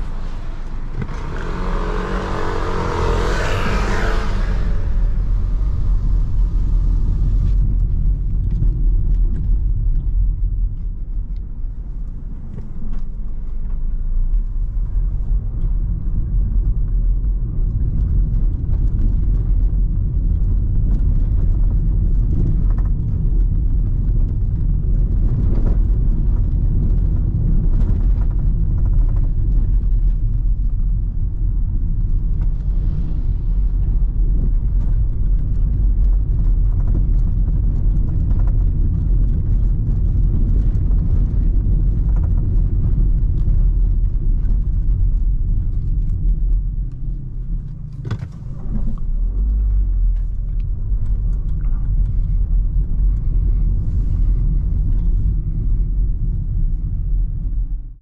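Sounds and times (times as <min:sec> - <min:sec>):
loud rushing noise: 0:00.0 - 0:07.5
tyre rumble on cobblestones: 0:00.0 - 0:58.0.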